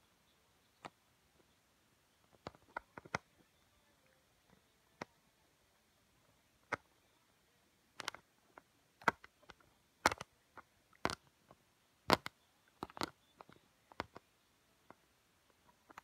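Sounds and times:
plastic bricks clicking and tapping: 0:09.0 - 0:10.3, 0:12.1 - 0:14.2.

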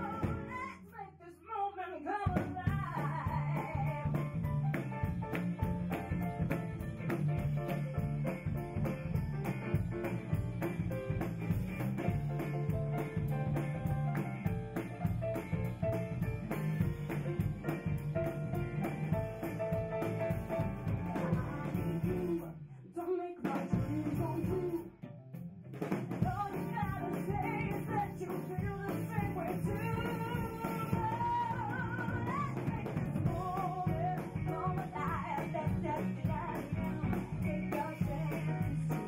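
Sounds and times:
live band playing: 0:00.0 - 0:00.7, 0:02.7 - 0:22.6, 0:23.4 - 0:39.0
woman singing: 0:00.0 - 0:04.5, 0:21.0 - 0:25.0, 0:26.2 - 0:39.0.

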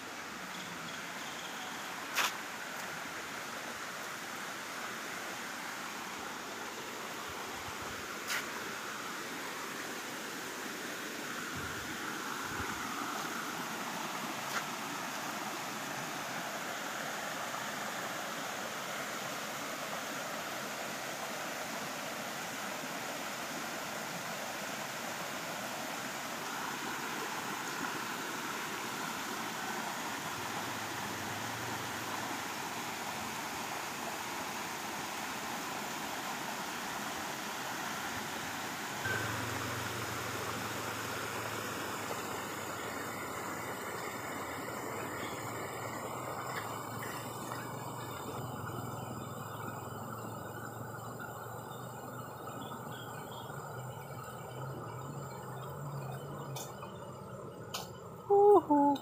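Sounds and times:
stream running over rocks: 0:00.0 - 0:59.0.

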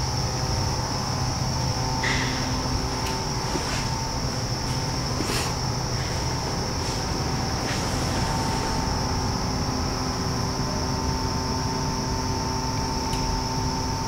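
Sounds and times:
steady mechanical hum: 0:00.0 - 0:14.0
hiss: 0:02.0 - 0:09.9.

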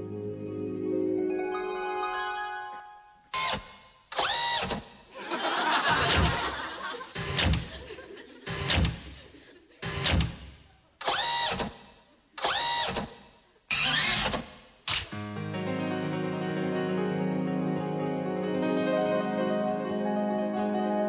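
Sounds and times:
audience laughter: 0:05.2 - 0:09.8.

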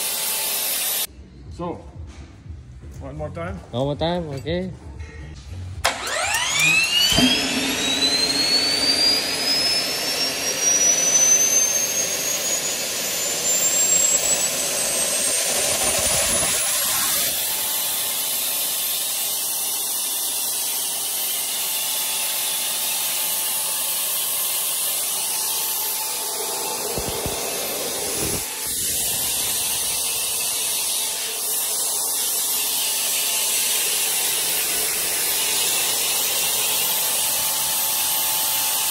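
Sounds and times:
turbine whine: 0:00.0 - 0:01.1, 0:05.7 - 0:38.9
rushing exhaust noise: 0:06.8 - 0:17.4, 0:26.0 - 0:31.9.

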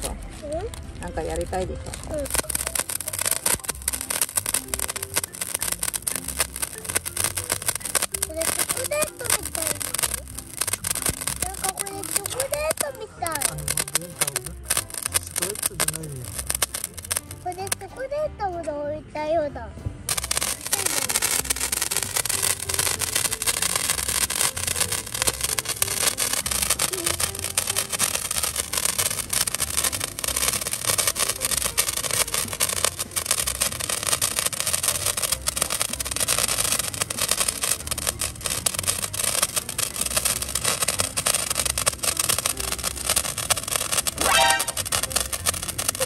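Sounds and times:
sparkler crackling fizz: 0:00.0 - 0:18.2, 0:20.0 - 0:46.0
person speaking: 0:11.4 - 0:16.5.

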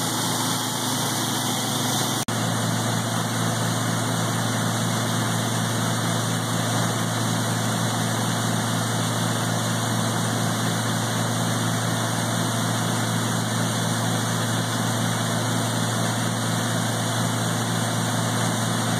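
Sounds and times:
grinder rushing noise: 0:00.0 - 0:08.6
tractor engine drone: 0:00.0 - 0:18.9.

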